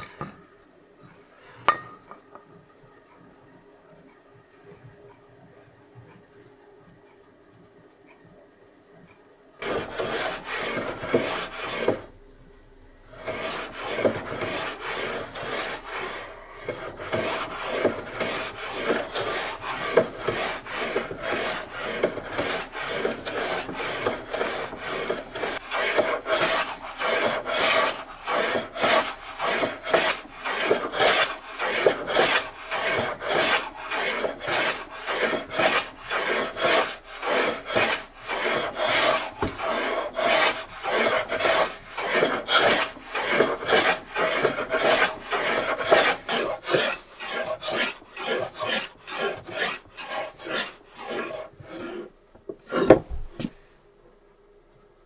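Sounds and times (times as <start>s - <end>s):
steel scraper rasping on wood: 9.6s - 12.1s, 13.1s - 53.0s.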